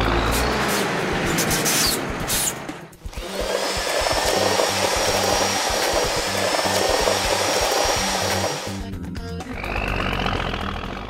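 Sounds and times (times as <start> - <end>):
cement mixer pouring concrete: 3.2 - 8.8.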